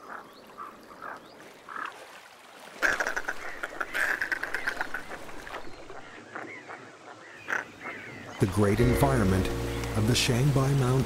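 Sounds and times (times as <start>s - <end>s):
harsh croaking animal calls: 2.8s - 5.1s.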